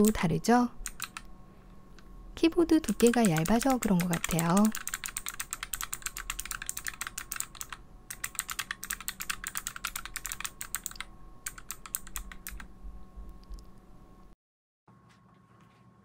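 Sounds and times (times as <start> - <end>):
mechanical keyboard key clicks: 0.8 - 1.2, 3.0 - 12.7.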